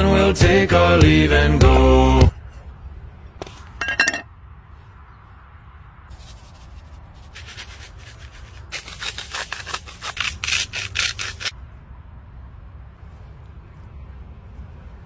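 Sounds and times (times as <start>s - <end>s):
dry seasoning shaken from sachet: 6.1s - 11.5s.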